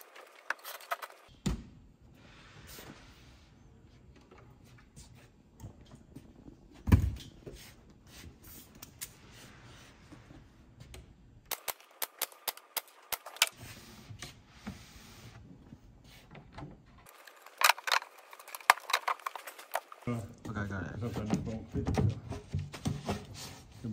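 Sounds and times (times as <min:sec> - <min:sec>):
nail gun firing: 0:11.5 - 0:13.5.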